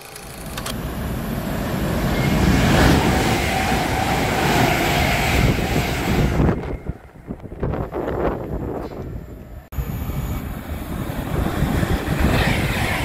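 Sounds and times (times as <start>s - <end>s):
train rumbling past: 0.1s - 13.0s.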